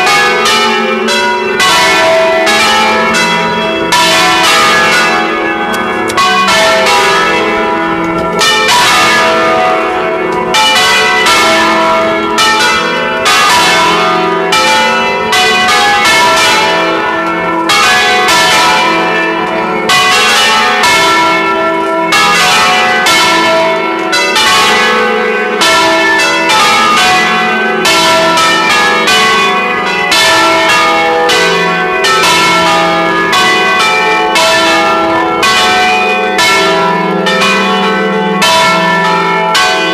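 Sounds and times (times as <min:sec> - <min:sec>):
church bells ringing: 0:00.0 - 0:39.9.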